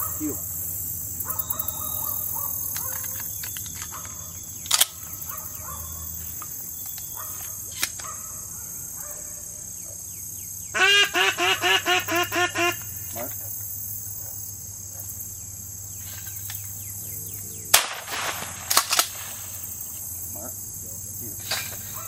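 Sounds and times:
high insect drone: 0:00.0 - 0:22.0
sharp crack: 0:17.7 - 0:20.0.

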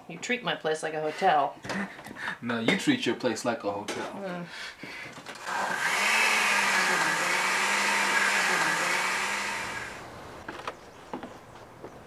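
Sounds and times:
blender motor running: 0:05.4 - 0:10.0.

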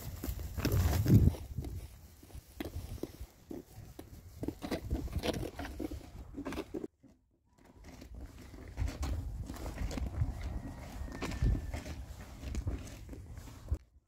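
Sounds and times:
wind on microphone: 0:00.0 - 0:05.7, 0:08.8 - 0:12.9
footsteps on pavement: 0:00.0 - 0:06.7, 0:08.4 - 0:14.0.

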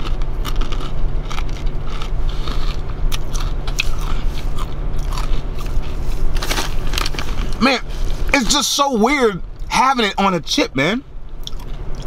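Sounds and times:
person chewing crisp chips: 0:00.0 - 0:08.5, 0:11.4 - 0:12.0
low hum: 0:00.0 - 0:12.0.

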